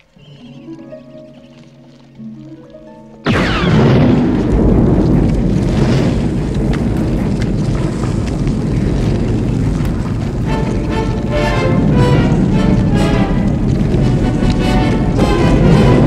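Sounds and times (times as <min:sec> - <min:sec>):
cracks: 0:00.0 - 0:16.0
sci-fi blaster zap: 0:03.2 - 0:06.3
deep earthquake rumble: 0:03.3 - 0:16.0.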